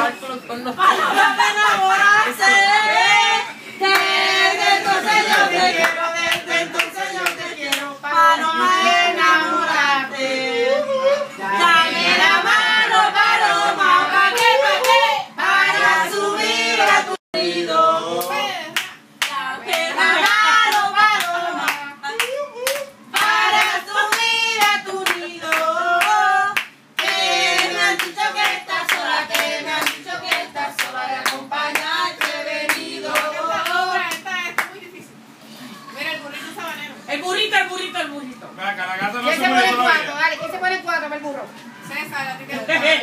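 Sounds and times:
people singing together: 0.0 - 34.3
hands clapping in rhythm: 18.2 - 34.8.

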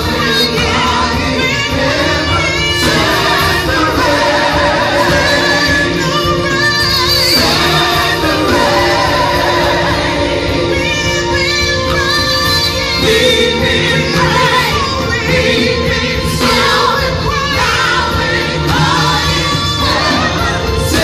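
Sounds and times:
gospel choir singing: 0.0 - 21.0
keyboards: 0.0 - 21.0.

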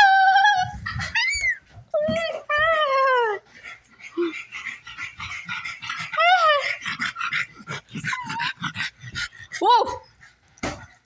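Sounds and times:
dog panting: 3.4 - 11.0.

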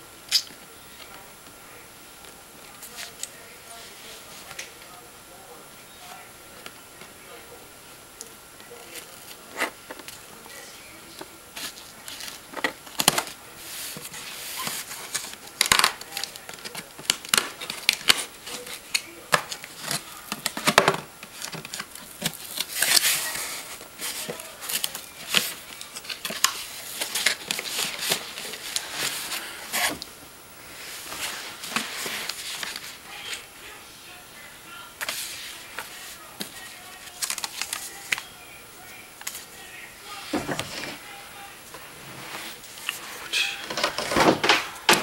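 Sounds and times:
paper rustling: 8.6 - 30.1, 30.7 - 33.8, 35.0 - 38.4.

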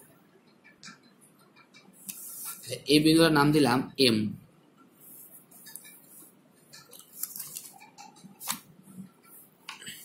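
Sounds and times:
paper notebook rustling: 6.9 - 8.7.

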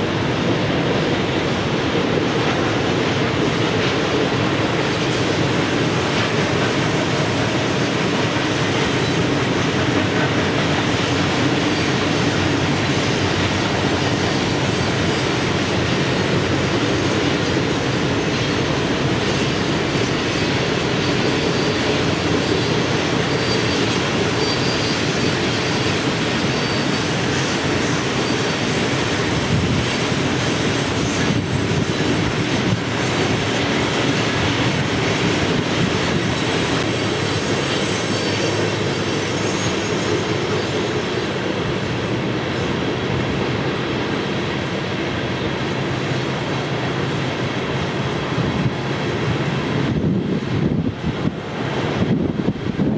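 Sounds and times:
freight train wheels rumbling: 0.0 - 52.9
faint high wheel squeals: 8.6 - 15.9, 17.0 - 29.0, 36.0 - 41.7.

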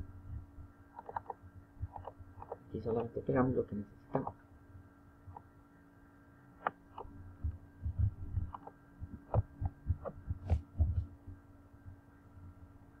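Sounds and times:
faint electrical hum: 0.0 - 13.0
mouse and keyboard clicks: 0.9 - 3.2, 4.1 - 4.4, 6.6 - 7.1, 8.5 - 10.7
soft low thumps: 6.9 - 12.0.

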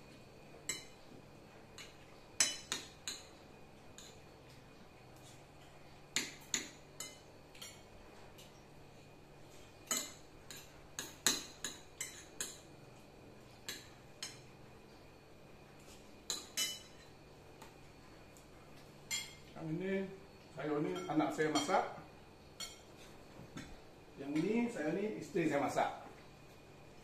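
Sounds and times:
cutlery clinking on plates: 1.7 - 3.3, 9.8 - 12.7, 16.3 - 17.2, 20.9 - 21.9, 22.6 - 23.8.

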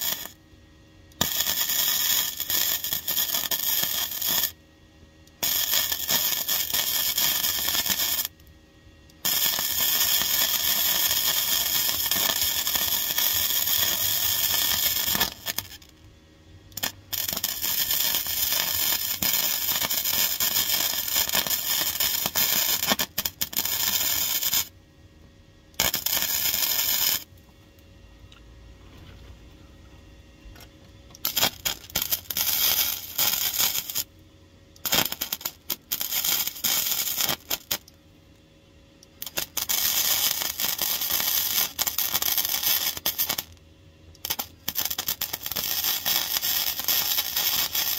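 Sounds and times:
welder crackling and spitting: 0.0 - 0.4, 1.2 - 4.6, 5.4 - 8.4, 9.1 - 16.0, 16.8 - 24.7, 25.8 - 27.3, 31.2 - 34.1, 34.8 - 37.9, 39.2 - 43.6, 44.2 - 47.9.

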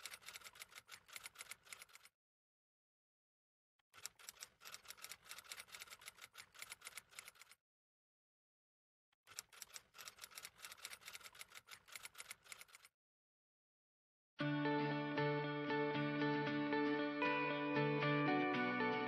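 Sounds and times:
rapid keyboard key clicks: 0.0 - 2.1, 4.0 - 7.6, 9.3 - 12.9.

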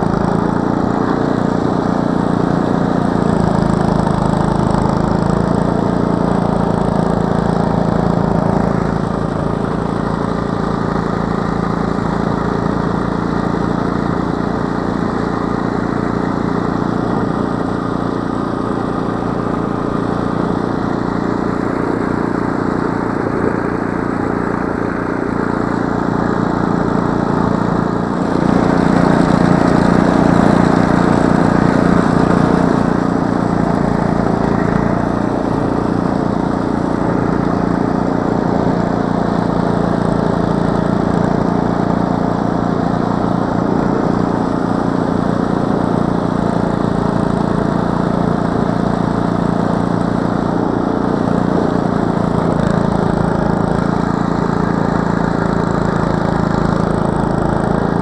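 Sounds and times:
snowblower engine running: 0.0 - 58.0
auger throwing snow: 13.2 - 58.0.

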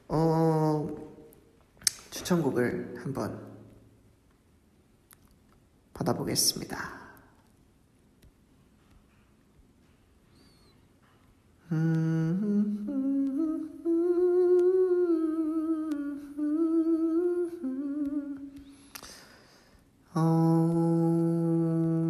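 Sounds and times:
man humming: 11.6 - 18.7, 20.1 - 22.0
breath in: 18.6 - 19.8.

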